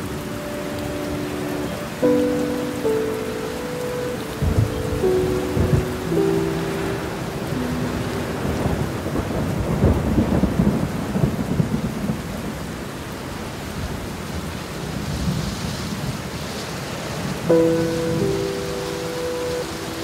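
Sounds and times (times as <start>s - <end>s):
heavy rain: 0.0s - 20.0s
rolling thunder: 4.3s - 12.8s.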